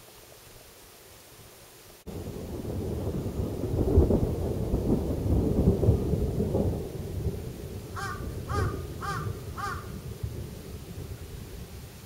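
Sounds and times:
thunder rumbling: 0:02.1 - 0:12.0
crow cawing: 0:08.0 - 0:10.0.

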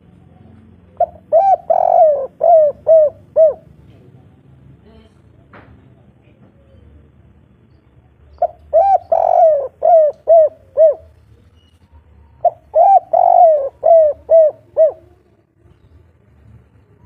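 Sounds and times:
dove cooing: 0:00.8 - 0:03.8, 0:08.4 - 0:11.2, 0:12.2 - 0:15.4.

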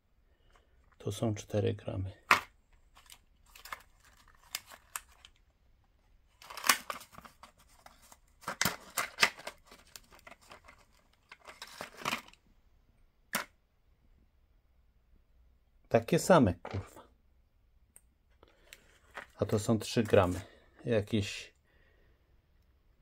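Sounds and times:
plastic packaging rustling: 0:02.3 - 0:05.4, 0:06.3 - 0:12.4.

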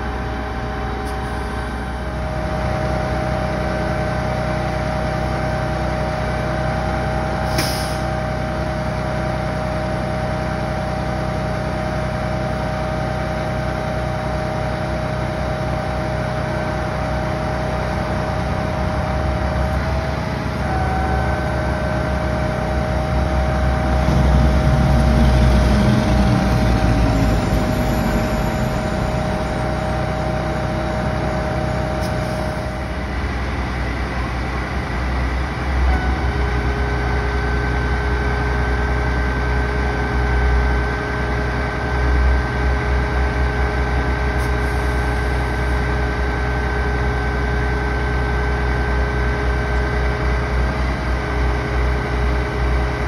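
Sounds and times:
truck engine running: 0:00.0 - 0:53.0
hydraulic crane whining: 0:15.6 - 0:53.0
low tone sweeping down: 0:18.1 - 0:40.8.

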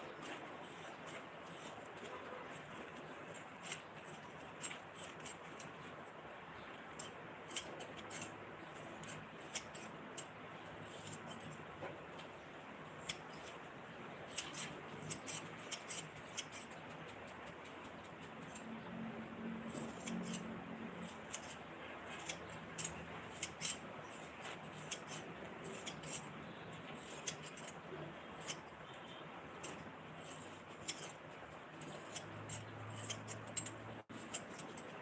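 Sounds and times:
scissors snipping: 0:07.0 - 0:12.3, 0:13.0 - 0:13.6, 0:14.3 - 0:18.8, 0:19.5 - 0:35.0.

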